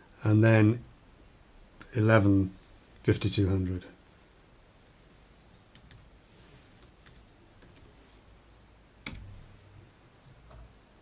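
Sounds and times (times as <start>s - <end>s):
laptop keyboard typing: 5.7s - 6.0s, 6.8s - 8.0s, 9.0s - 9.4s.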